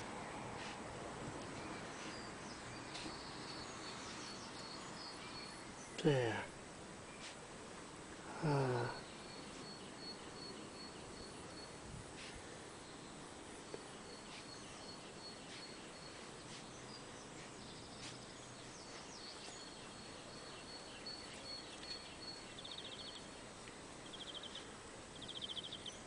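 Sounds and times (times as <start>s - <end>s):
faint hiss: 0.0s - 26.0s
insect high-pitched trill: 8.3s - 11.9s
insect buzzing chirps: 8.3s - 16.6s.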